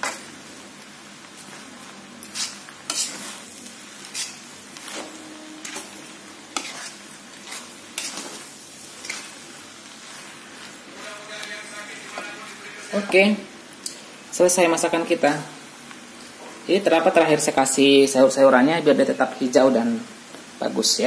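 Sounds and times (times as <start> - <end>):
noodles sizzling in a wok: 0.0 - 21.0
spatula scraping and knocking pan: 2.3 - 3.4, 4.0 - 8.4.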